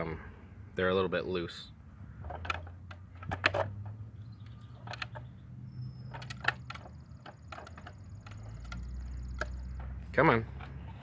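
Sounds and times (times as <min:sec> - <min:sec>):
plastic gearbox clicks and clacks: 0:02.2 - 0:05.3, 0:06.1 - 0:11.0.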